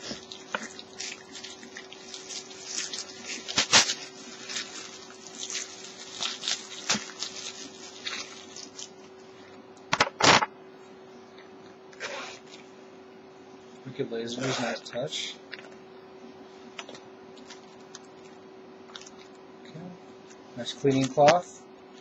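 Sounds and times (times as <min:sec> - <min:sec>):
plastic bag crinkling: 0:00.0 - 0:09.4, 0:17.3 - 0:19.4
faint steady hum: 0:00.0 - 0:22.0.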